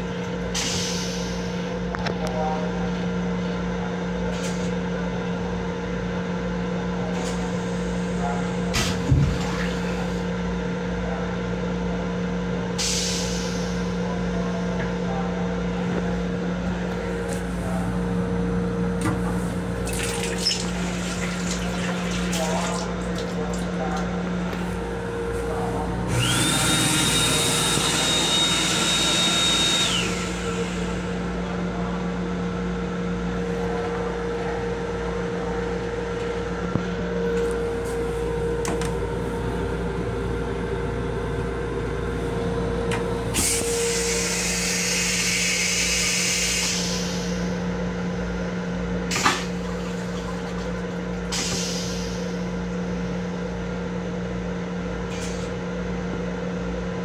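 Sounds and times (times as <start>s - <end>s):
railcar steady hum: 0.0s - 57.0s
toilet flush swirling water: 19.9s - 23.8s.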